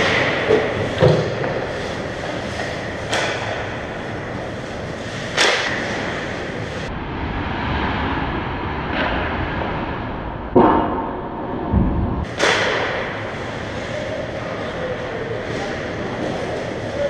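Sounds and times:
stick hitting puck: 0.0s - 4.4s, 5.2s - 6.4s, 12.3s - 13.3s
skates scraping ice: 0.0s - 6.9s, 12.3s - 17.0s.

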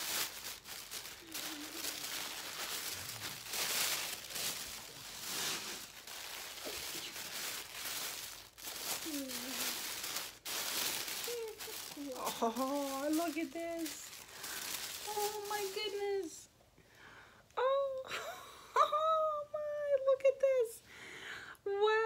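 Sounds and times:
tissue paper rustling: 0.0s - 16.4s.

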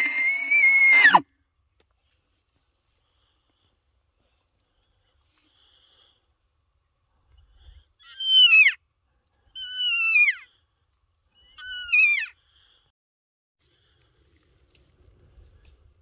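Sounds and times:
elk call notes sliding down: 0.0s - 1.2s.

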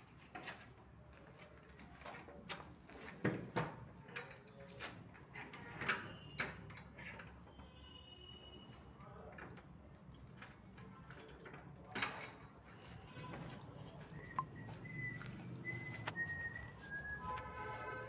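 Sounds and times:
thin squeak: 16.0s - 18.0s.

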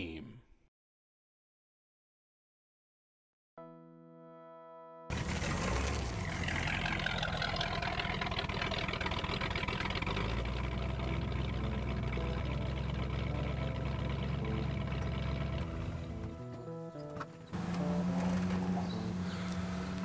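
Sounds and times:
car engine idling: 5.1s - 20.0s.

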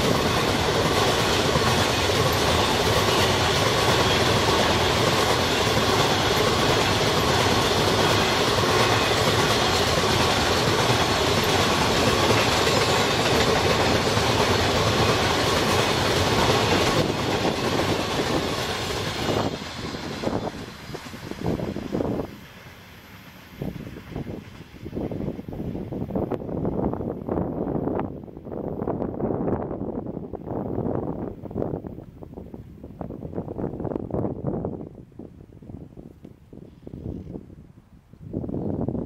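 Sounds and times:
clickety-clack over rail joints: 0.0s - 26.5s
freight train wheels rumbling: 0.0s - 36.4s.

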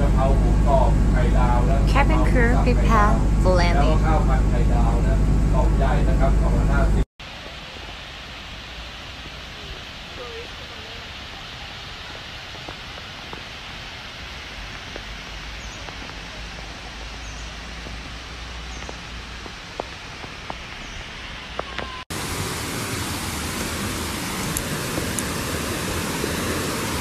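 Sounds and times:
stream rushing: 7.2s - 27.0s.

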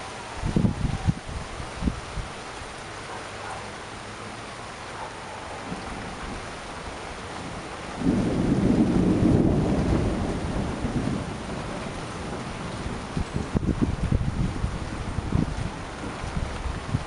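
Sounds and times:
steady rain: 0.0s - 17.0s
low rumble of thunder: 5.6s - 17.0s.

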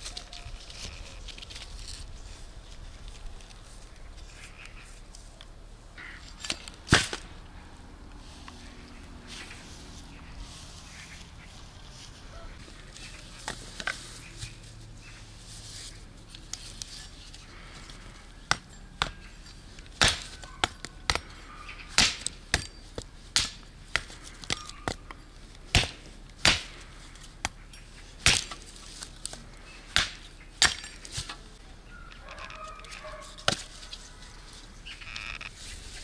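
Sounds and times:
sharp chopping blows: 25.7s - 26.8s.

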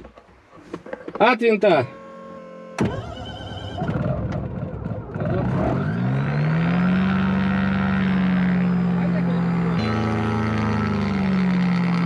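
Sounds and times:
two-stroke engine starting: 2.8s - 8.0s.

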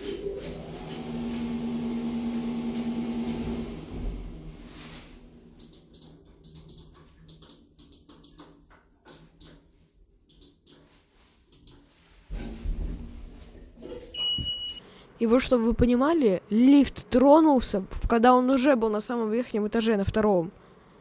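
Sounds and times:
lift electric hum: 0.0s - 10.8s, 11.5s - 17.9s.

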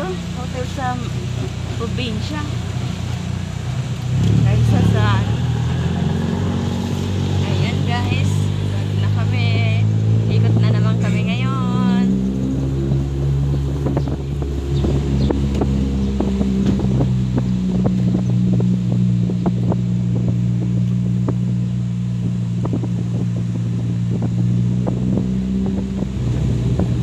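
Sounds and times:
car engine humming: 0.0s - 27.0s.

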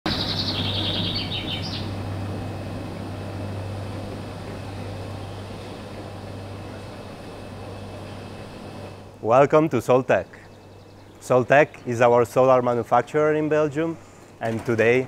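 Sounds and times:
high chirps: 0.1s - 2.0s
motorised door motor hum: 0.1s - 9.3s.

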